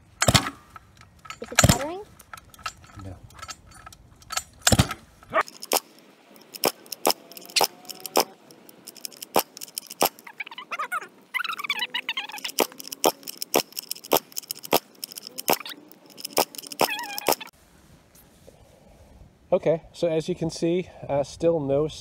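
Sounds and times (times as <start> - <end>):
pull-start clicks and rattles: 0.0 - 10.3, 12.3 - 17.5.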